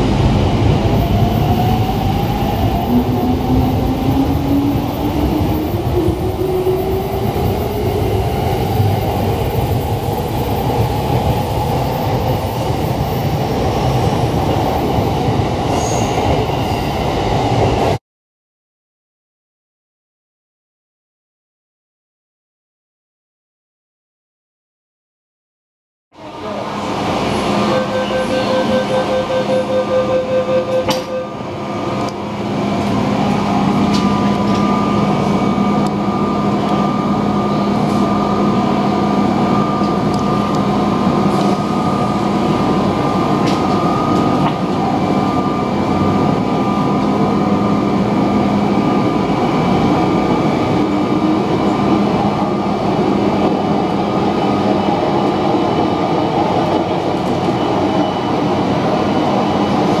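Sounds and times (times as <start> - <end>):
wheels rumbling on rail: 26.2 - 60.0.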